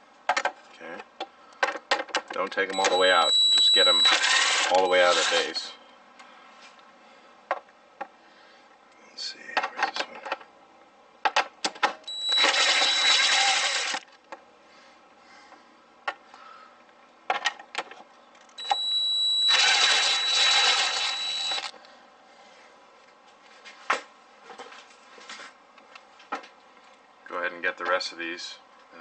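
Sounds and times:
power driver whirring: 2.7 - 5.6, 12.1 - 14.1, 18.6 - 21.8.

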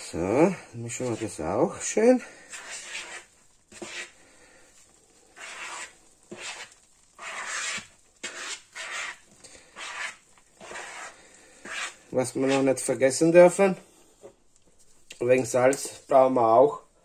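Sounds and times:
spoon scraping dough in bowl: 0.9 - 1.6, 2.4 - 4.2, 5.3 - 12.9.

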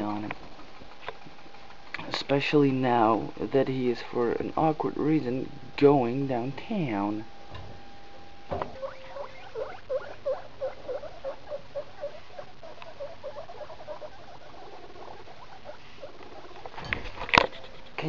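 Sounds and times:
guinea pig squeaking: 8.6 - 18.0.

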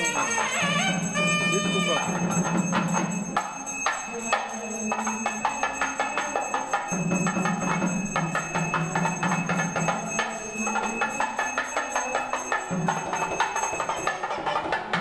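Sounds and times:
held low melody: 0.0 - 2.4
rapid percussion strikes: 0.0 - 15.0
ringing bells: 0.0 - 15.0.

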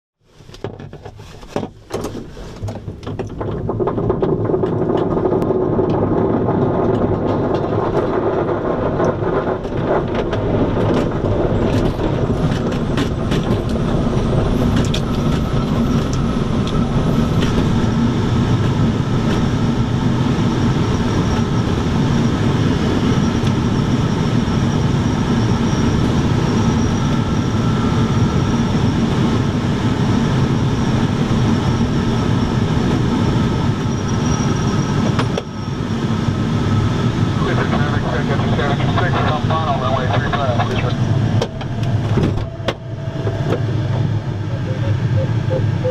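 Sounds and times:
knocks and rattles: 0.6 - 13.8
loud rumbling: 3.3 - 45.9.

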